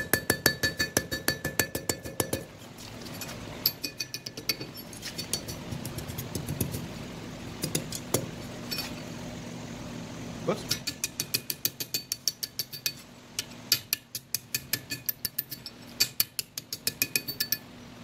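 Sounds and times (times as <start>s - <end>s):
anvil ringing: 0.0s - 2.5s
hammer striking steel on anvil: 0.0s - 2.5s, 3.6s - 5.6s, 10.7s - 17.7s.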